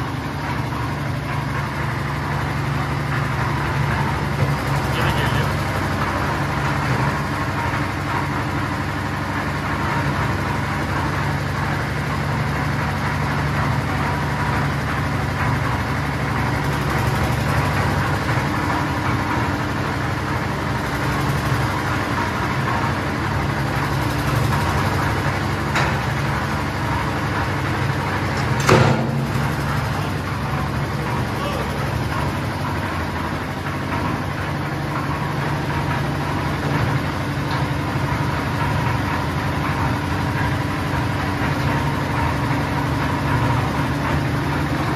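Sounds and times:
mixer engine running: 0.0s - 44.9s.

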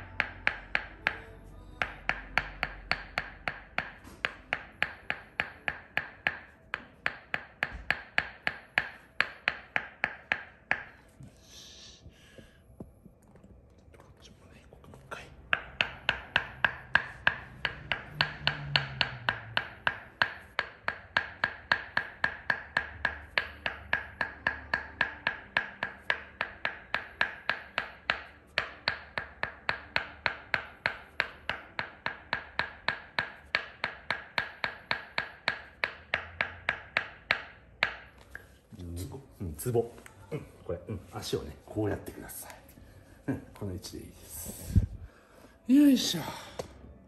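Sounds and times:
wooden mallet tapping wooden wedge: 0.0s - 11.1s, 15.1s - 38.6s.

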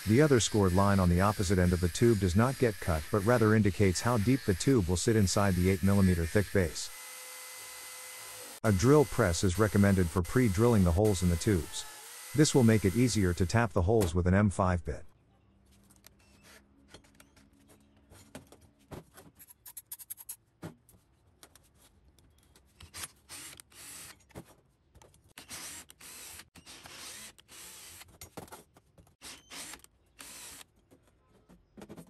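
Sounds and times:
cordless drill running in bursts: 0.0s - 13.7s, 25.5s - 28.0s, 29.5s - 30.6s.

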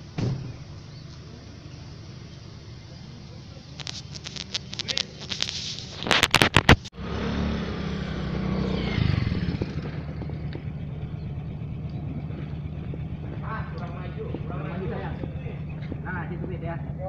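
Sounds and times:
vehicle engine humming: 0.0s - 17.0s
rubbing and knocking on microphone: 3.8s - 6.9s.

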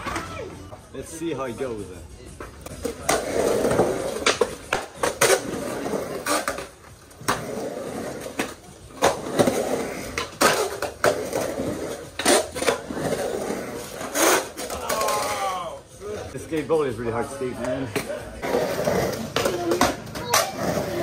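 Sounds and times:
skateboard wheels rolling on concrete: 0.0s - 21.0s
skateboard clacks and knocks: 17.6s - 21.0s.

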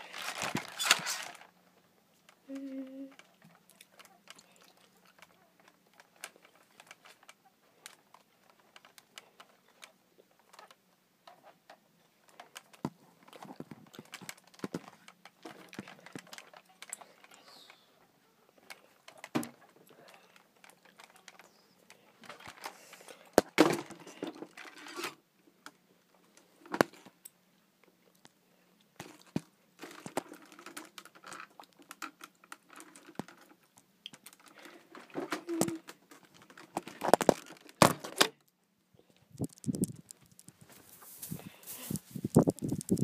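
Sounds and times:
toy clicking and tapping: 42.2s - 43.0s.

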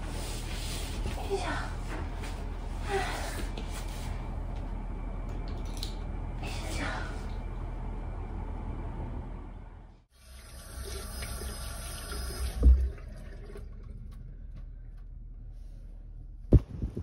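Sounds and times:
tap water running into washbasin: 10.2s - 14.7s.

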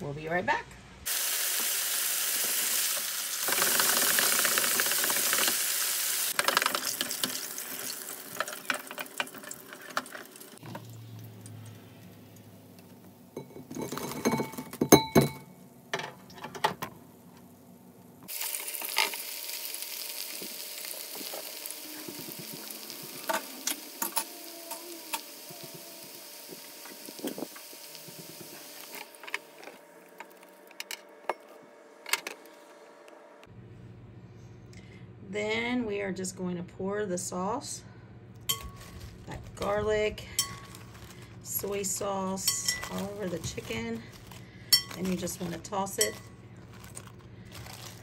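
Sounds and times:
hot oil sizzling and popping: 1.0s - 13.1s, 18.3s - 30.5s
wire fryer basket clattering: 41.6s - 44.0s.

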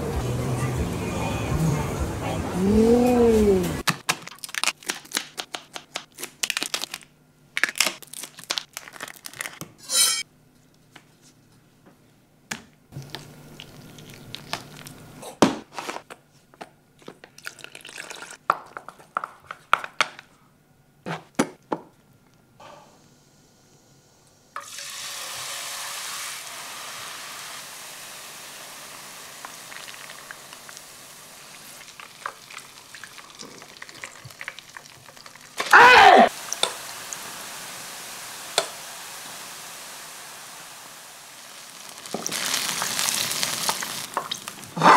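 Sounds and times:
deep-frying sizzle: 24.6s - 35.6s, 36.3s - 44.8s.

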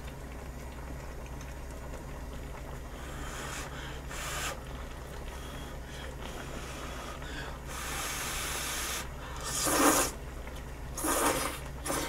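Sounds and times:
steady low hum: 0.0s - 12.0s
noodles slurped: 7.9s - 10.2s, 11.0s - 12.0s.

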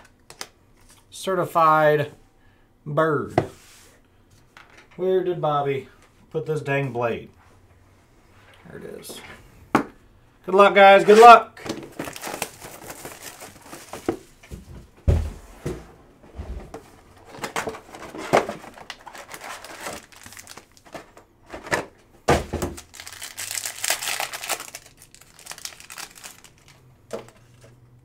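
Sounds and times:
wrappers crinkling and tearing: 11.9s - 14.0s, 17.9s - 21.2s, 22.7s - 27.7s.

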